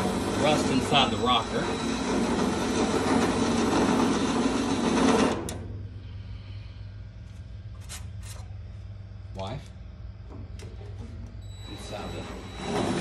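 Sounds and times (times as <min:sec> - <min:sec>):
machine mechanical buzz: 0:00.0 - 0:13.0
low steady hum: 0:05.4 - 0:13.0.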